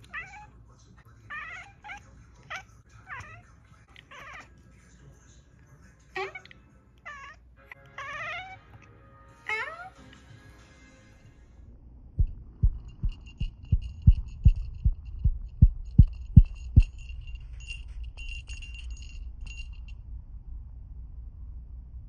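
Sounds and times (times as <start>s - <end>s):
deep thumps: 12.1s - 19.8s
faint high jingling: 12.3s - 20.2s.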